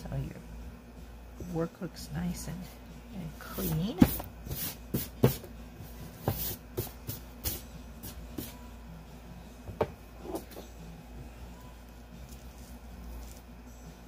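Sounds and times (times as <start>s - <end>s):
hand sweeping paper: 3.5s - 8.7s.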